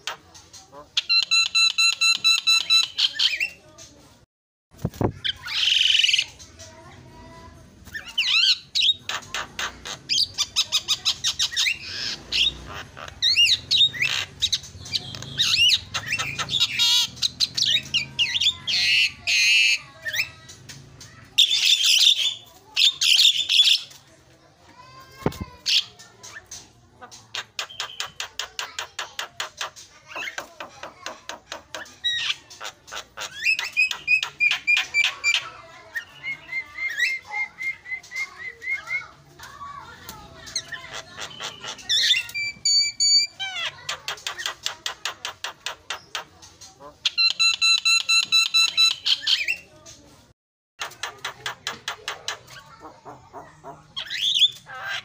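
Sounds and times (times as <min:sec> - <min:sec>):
myna bird calling: 0:07.9 - 0:23.9, 0:25.6 - 0:39.2, 0:40.4 - 0:49.7.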